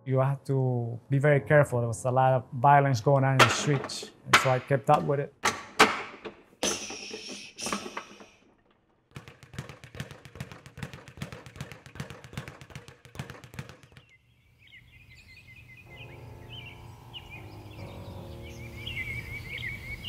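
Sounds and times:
rapid wooden clacking: 3.4 - 14.1
birds chirping: 13.7 - 20.0.

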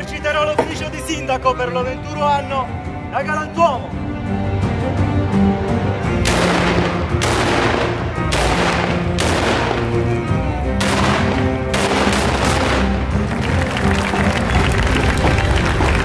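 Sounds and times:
background music: 0.0 - 16.0
musket shots with echo: 6.2 - 13.1.

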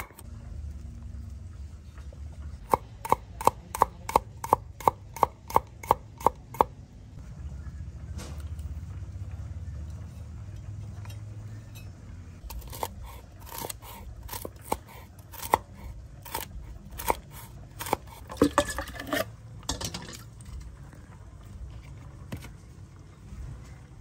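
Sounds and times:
knife chopping on wooden board: 12.5 - 15.6, 16.2 - 18.3.

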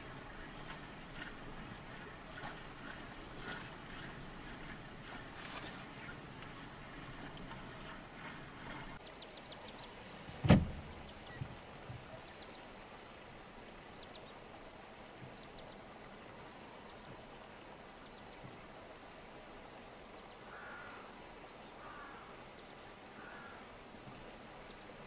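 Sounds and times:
loud thump: 10.4 - 10.9.

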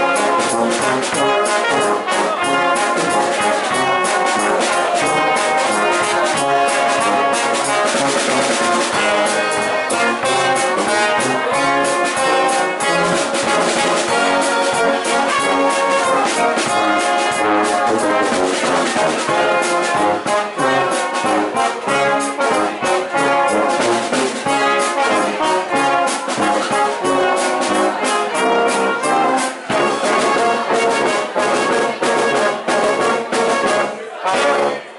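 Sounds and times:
oompah brass band playing: 0.0 - 34.9.

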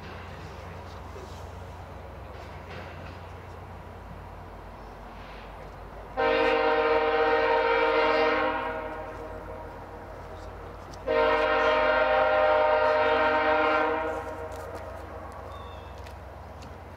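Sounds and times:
low rumble of train: 0.0 - 16.9
locomotive horn chord: 6.2 - 10.0, 11.0 - 15.0.

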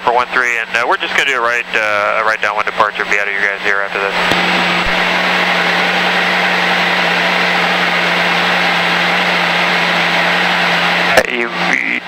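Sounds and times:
propeller aircraft engine drone: 0.0 - 12.0
airflow noise: 4.1 - 11.1.

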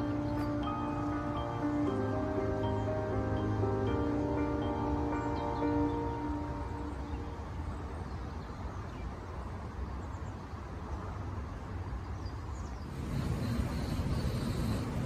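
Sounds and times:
background music: 0.0 - 8.2
steady low rumble: 12.9 - 15.0.

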